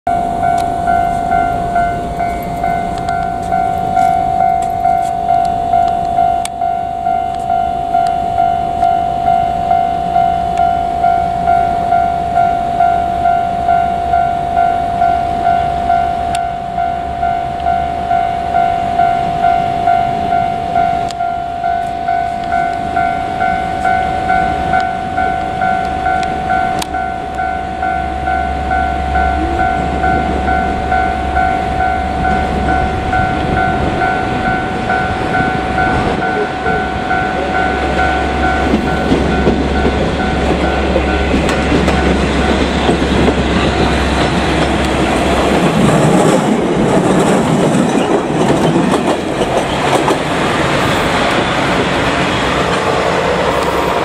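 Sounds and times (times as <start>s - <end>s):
level crossing warning bell: 0.1s - 54.0s
train rumbling past: 0.1s - 54.0s.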